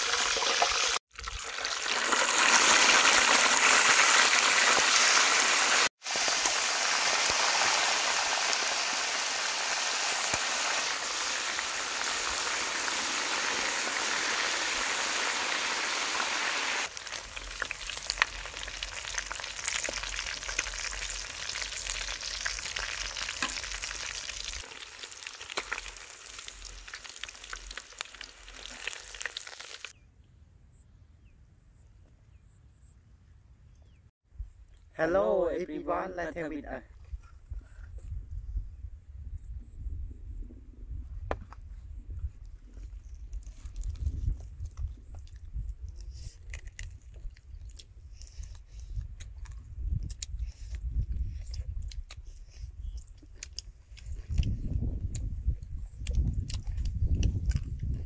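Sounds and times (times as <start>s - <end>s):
food deep-frying in oil: 0.0s - 30.0s
oil popping: 16.8s - 29.9s.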